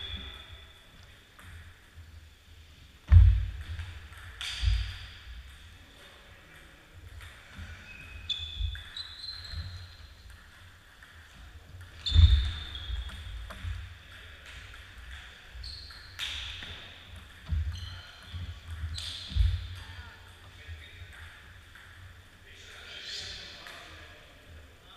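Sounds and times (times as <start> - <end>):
shoes thudding and squeaking: 7.7 - 10.0, 11.9 - 13.8, 17.4 - 19.8
ping pong ball clicking: 10.2 - 12.0.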